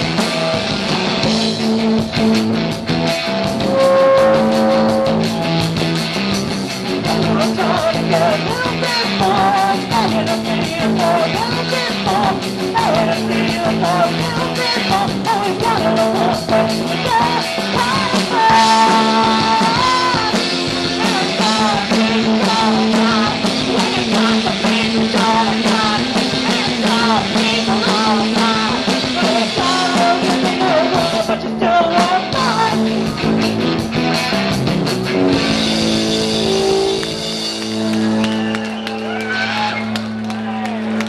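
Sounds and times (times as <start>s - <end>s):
live punk rock band: 0.0s - 41.0s
woman singing: 7.0s - 33.1s.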